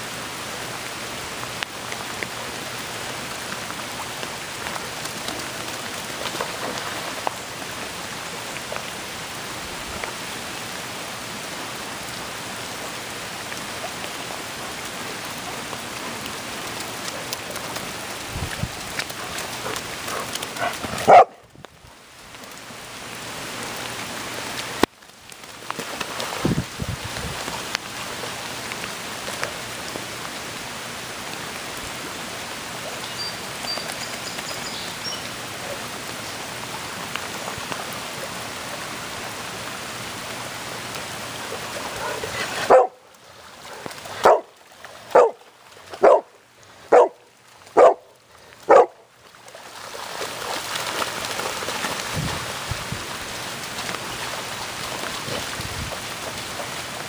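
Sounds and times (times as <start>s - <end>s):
rain falling on grass and water: 0.0s - 57.0s
dog barking: 20.6s - 21.4s, 42.0s - 43.0s, 44.2s - 44.5s, 45.1s - 45.4s, 46.0s - 46.3s, 46.9s - 47.2s, 47.8s - 48.1s, 48.7s - 49.0s.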